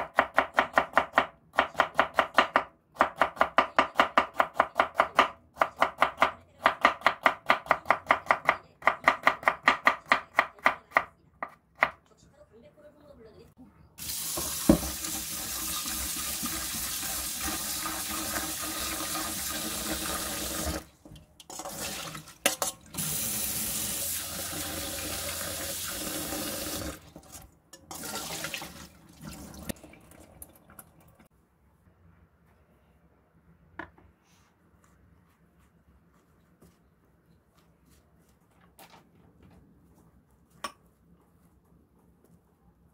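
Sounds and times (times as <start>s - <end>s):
tap water running into steel bowl: 14.0s - 20.8s.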